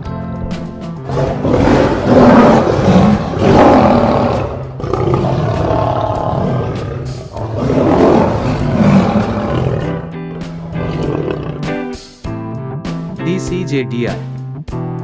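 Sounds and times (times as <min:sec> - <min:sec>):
lion roaring: 0:01.0 - 0:12.0.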